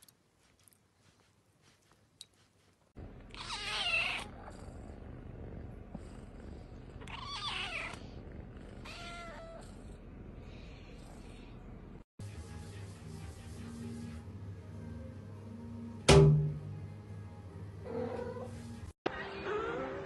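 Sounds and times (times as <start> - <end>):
low purr: 4.2 - 7.1, 7.9 - 10.1.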